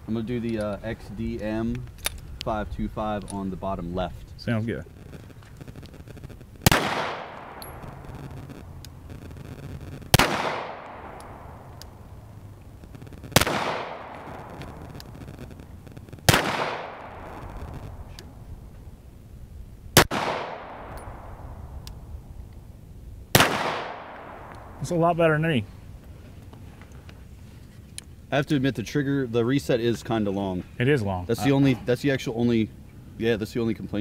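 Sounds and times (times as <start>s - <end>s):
pistol shots with echo: 6.6s - 8.4s, 10.1s - 12.4s, 13.2s - 15.6s, 16.2s - 18.1s, 20.0s - 22.0s, 23.3s - 25.0s.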